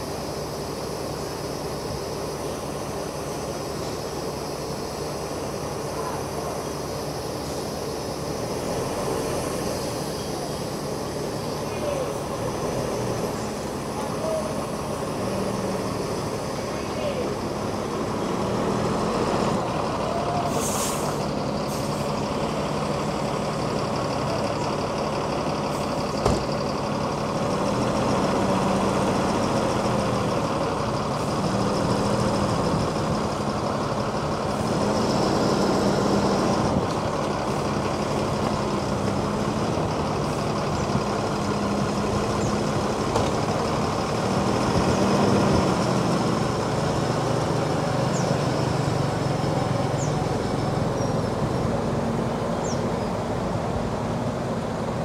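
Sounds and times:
bus diesel engine: 0:00.0 - 0:55.0
short hiss: 0:20.5 - 0:22.0.

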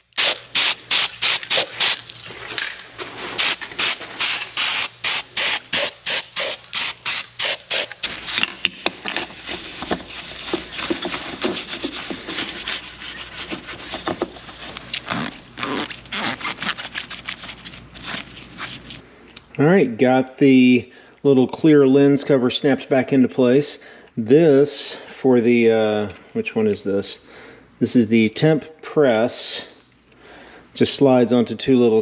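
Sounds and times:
rubbing with squeaks: 0:09.3 - 0:19.0.

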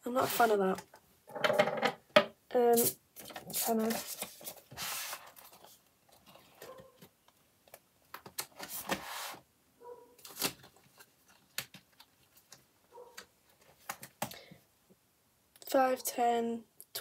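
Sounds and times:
banknotes and plastic sleeves rustling: 0:02.7 - 0:09.4, 0:10.1 - 0:14.4.

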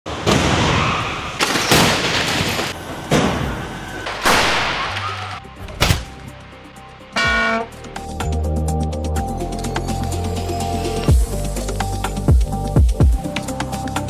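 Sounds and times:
loud car crash impacts: 0:00.1 - 0:06.2
background music: 0:04.7 - 0:14.0.

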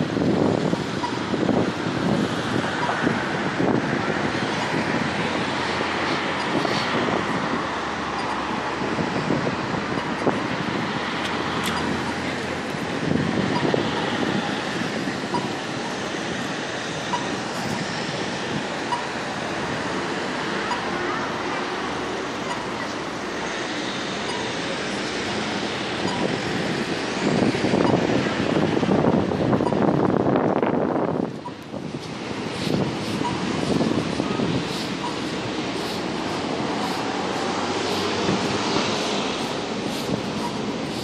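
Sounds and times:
city street traffic: 0:00.0 - 0:41.0.

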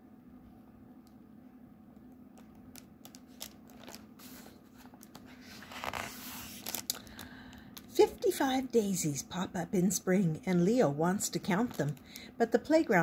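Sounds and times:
faint low hum: 0:00.0 - 0:13.0
book pages rustling and turning: 0:02.4 - 0:08.0.

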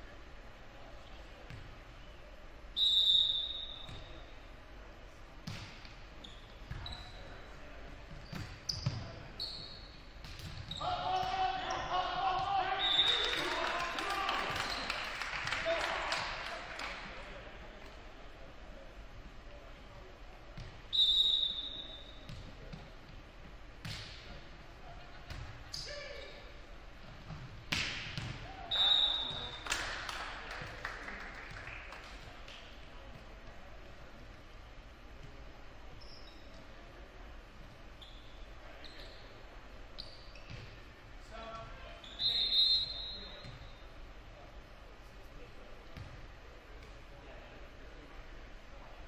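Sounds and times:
referee's whistle: 0:02.8 - 0:03.9, 0:12.8 - 0:13.4, 0:20.9 - 0:22.2, 0:28.6 - 0:29.6, 0:42.0 - 0:43.7
sneakers squeaking on gym floor: 0:02.8 - 0:04.3, 0:05.5 - 0:07.5, 0:08.1 - 0:11.0, 0:20.6 - 0:22.9, 0:35.9 - 0:36.8, 0:37.9 - 0:40.9, 0:41.8 - 0:43.9
referee's whistle blast: 0:28.7 - 0:29.6, 0:42.0 - 0:43.4.

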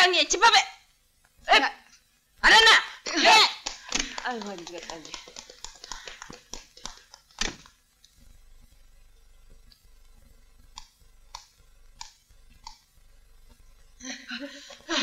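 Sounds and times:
low hiss: 0:00.0 - 0:15.0
faint clicks: 0:09.6 - 0:13.0.

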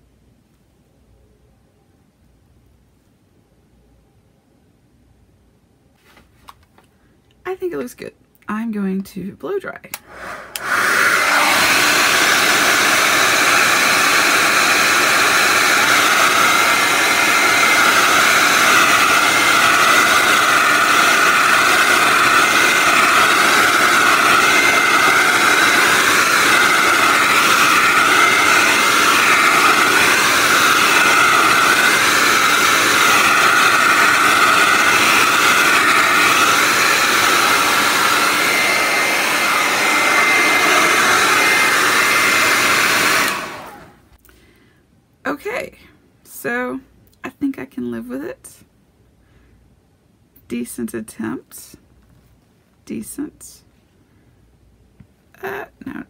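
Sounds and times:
hair dryer blowing with whine: 0:09.9 - 0:44.1.

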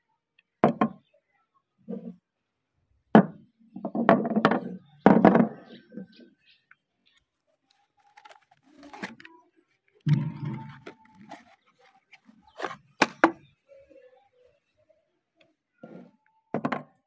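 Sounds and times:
cardboard carton crinkling: 0:07.8 - 0:09.3.

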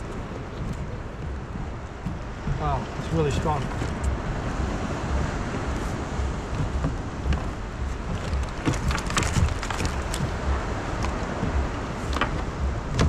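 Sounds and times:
wind rumble on microphone: 0:00.0 - 0:13.0
clicks and rattles of net: 0:07.3 - 0:10.4, 0:12.1 - 0:13.0.

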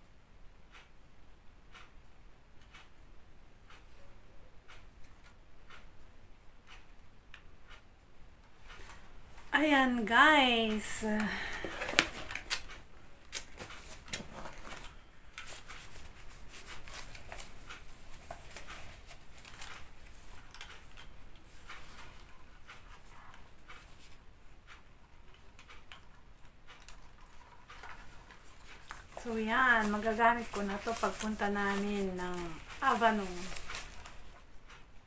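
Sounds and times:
paper pages rustling: 0:13.4 - 0:21.1, 0:27.7 - 0:34.5.

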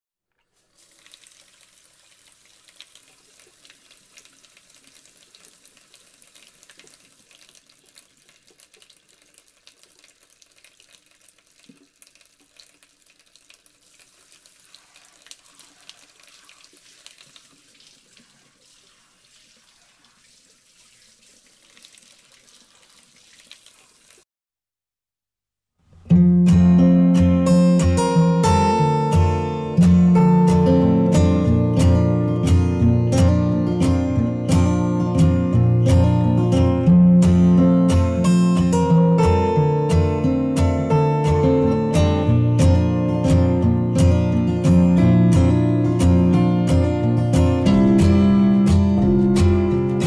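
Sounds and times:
fountain water splashing: 0:00.5 - 0:24.2.

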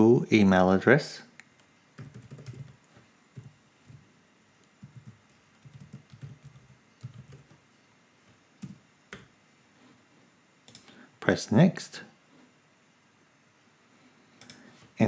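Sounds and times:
typing on a keyboard: 0:01.6 - 0:04.0, 0:04.8 - 0:07.6, 0:08.6 - 0:09.3.

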